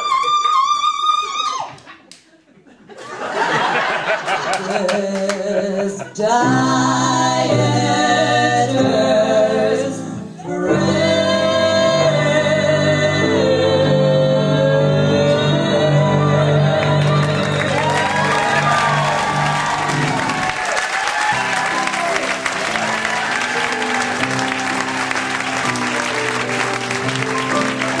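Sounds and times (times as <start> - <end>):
female vocal trio singing: 4.6 - 18.3.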